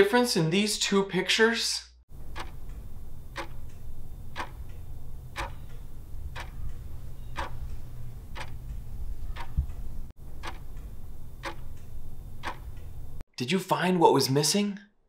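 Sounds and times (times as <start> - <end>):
clock ticking: 2.1 - 13.2
low steady hum: 2.1 - 13.2.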